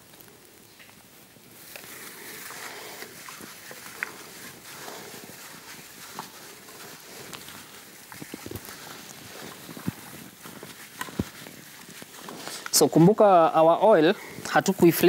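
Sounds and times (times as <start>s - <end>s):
plastic gloves crinkling: 0.0s - 15.0s
wet squelching: 1.6s - 12.9s.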